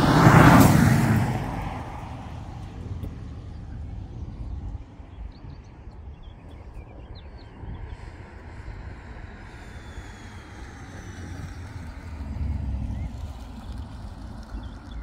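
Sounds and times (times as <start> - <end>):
car passing at speed: 0.0 - 4.5, 8.6 - 15.0.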